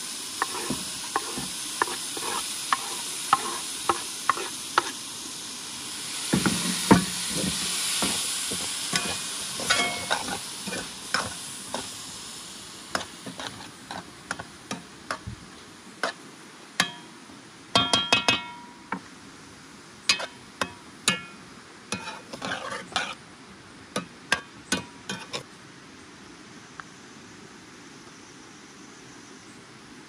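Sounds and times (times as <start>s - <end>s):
metal utensil clinking on pot: 8.9s - 10.8s, 16.8s - 17.1s, 17.8s - 18.8s.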